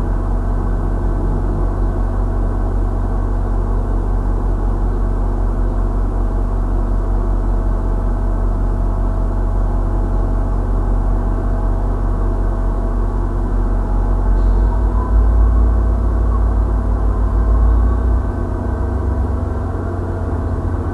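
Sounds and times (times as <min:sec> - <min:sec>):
engine idling drone: 0:00.0 - 0:20.9.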